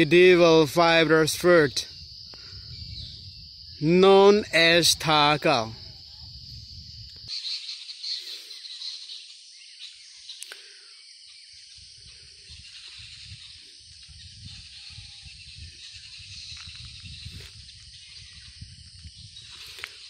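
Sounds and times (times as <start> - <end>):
high-pitched insect chorus: 0.0 - 20.0
click: 10.4 - 10.6.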